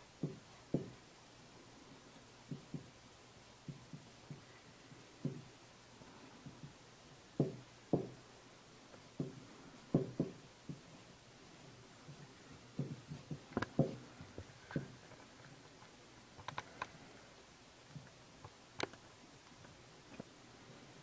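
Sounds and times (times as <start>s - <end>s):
soft taps of iron on paper: 12.0s - 15.0s.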